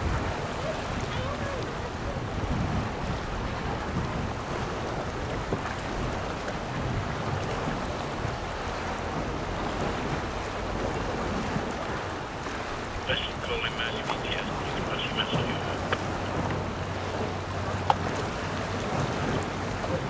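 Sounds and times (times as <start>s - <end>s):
water washing: 0.0s - 20.0s
wind buffeting microphone: 0.0s - 20.0s.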